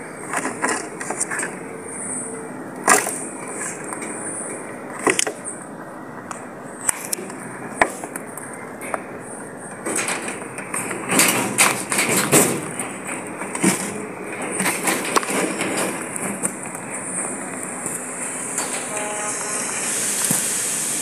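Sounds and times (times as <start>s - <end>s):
rabbits crunching pellets: 0.2s - 1.7s, 6.9s - 18.9s.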